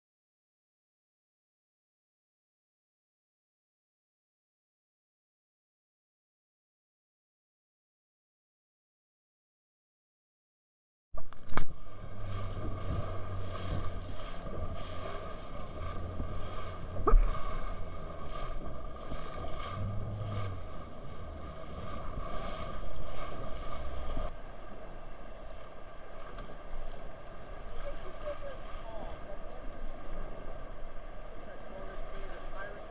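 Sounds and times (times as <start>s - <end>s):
wind buffeting microphone: 11.2s - 24.3s
boat motor running: 11.2s - 32.9s
choppy water: 11.2s - 32.9s
low hum: 11.2s - 32.9s.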